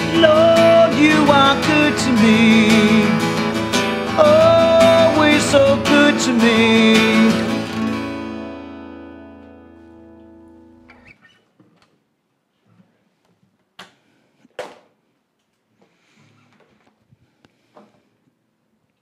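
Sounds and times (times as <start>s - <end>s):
acoustic guitar chord ringing: 0.0s - 11.0s.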